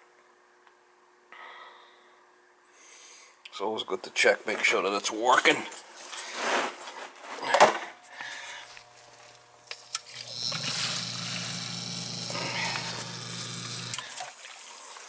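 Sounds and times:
pump humming: 9.9 - 14.7.

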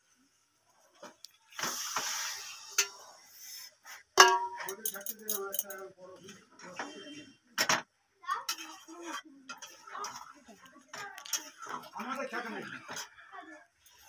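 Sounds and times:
hot water pouring into pan: 1.5 - 3.6
metal spatula scraping pan: 1.6 - 3.6, 8.4 - 13.2
metal clang: 4.2 - 5.7.

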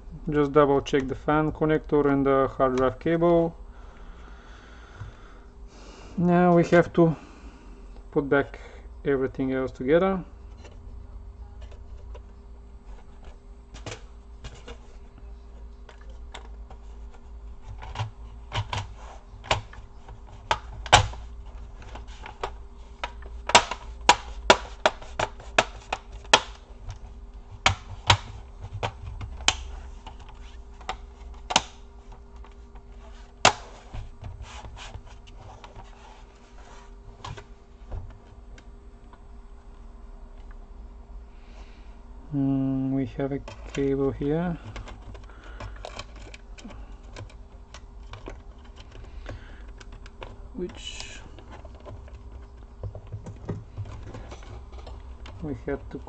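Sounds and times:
faint steady hum: 0.0 - 56.0
plastic clips clicking into place: 21.8 - 27.0.

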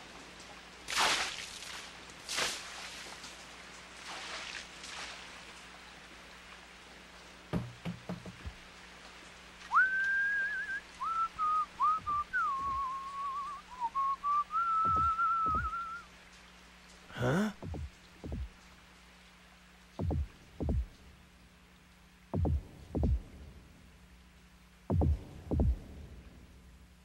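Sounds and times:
faint hiss: 0.0 - 27.0
soft knocks: 7.5 - 8.6, 20.0 - 20.9
person whistling a tune: 9.7 - 16.1.

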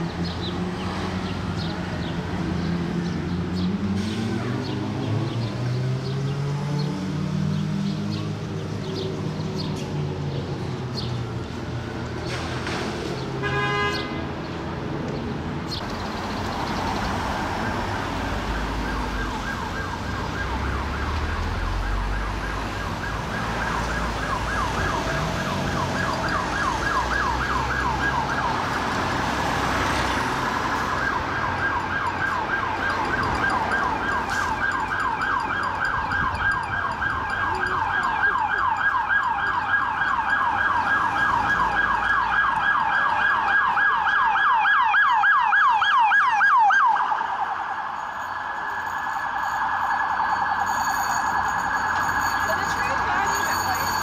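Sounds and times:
emergency siren yelping: 17.4 - 54.0.

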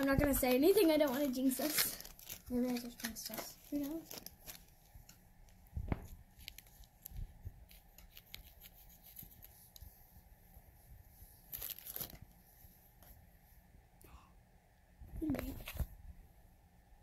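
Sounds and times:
foil crinkling: 0.0 - 5.0, 11.4 - 12.3
scissors snipping foil: 0.8 - 4.7.

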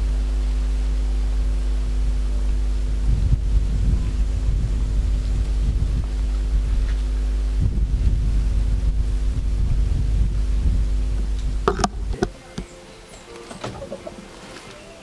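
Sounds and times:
faint steady hum: 0.0 - 15.0
wind buffeting microphone: 1.3 - 12.6.

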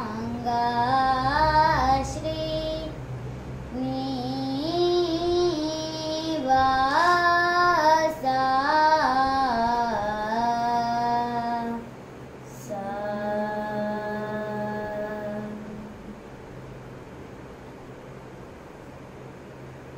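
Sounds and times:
boy singing unaccompanied: 0.0 - 3.0, 3.7 - 11.9, 12.5 - 16.0.

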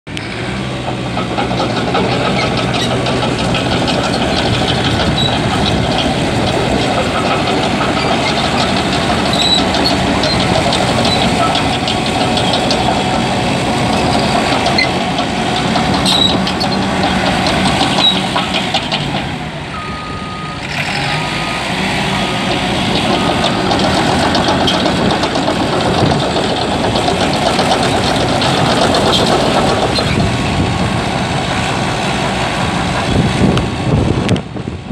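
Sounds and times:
steel tracks clanking: 0.1 - 34.8
dozer diesel engine running: 0.1 - 34.9
backup alarm beeping: 19.7 - 22.5.

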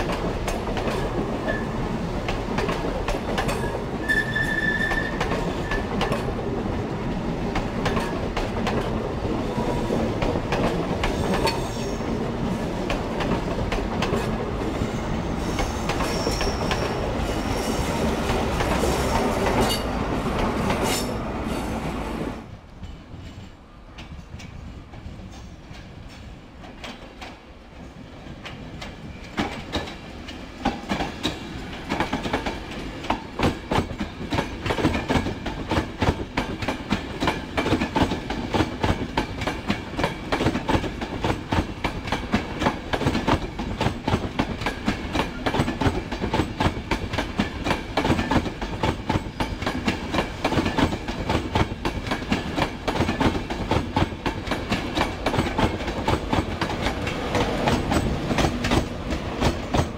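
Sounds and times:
electric locomotive passing: 0.0 - 59.9
train wheels clacking over rail joints: 2.2 - 6.3, 7.5 - 9.0, 28.4 - 59.9.

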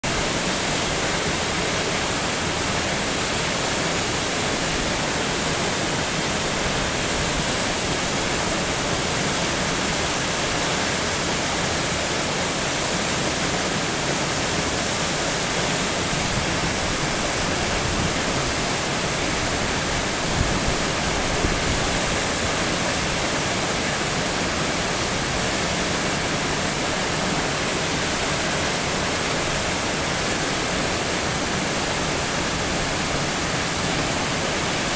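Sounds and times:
waterfall rushing: 0.0 - 34.9.

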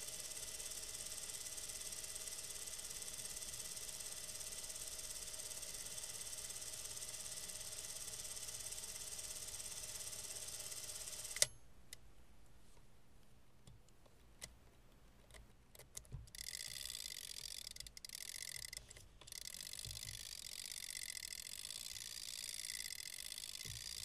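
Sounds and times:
clockwork camera drive running: 0.0 - 11.5, 16.3 - 24.0
winding crank ratcheting: 16.3 - 24.0.

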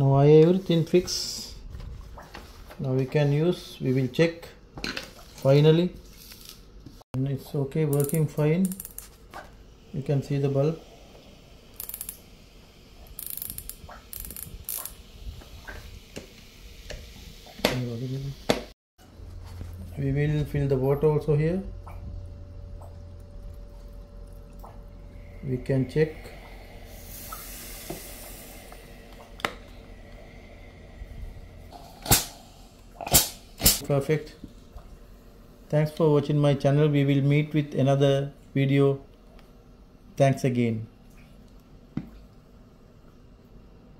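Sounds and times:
faint hiss: 9.6 - 18.7, 25.2 - 34.5.

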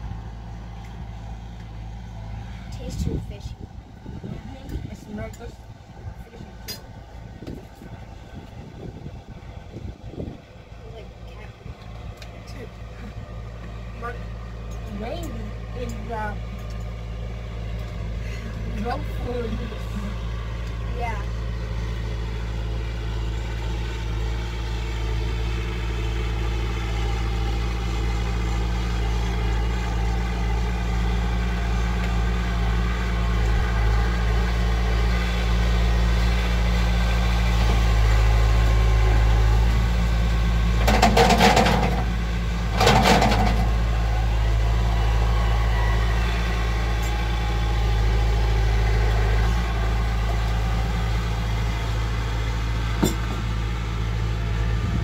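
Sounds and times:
tractor engine idling: 0.0 - 55.0.

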